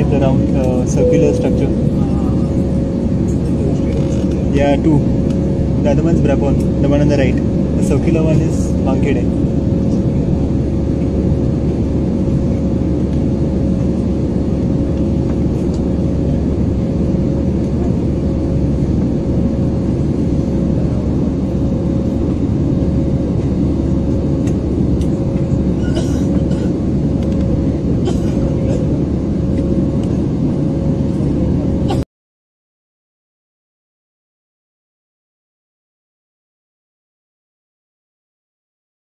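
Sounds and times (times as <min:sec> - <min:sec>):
jet cabin engine drone: 0:00.0 - 0:32.0
thin steady tone: 0:01.0 - 0:02.8.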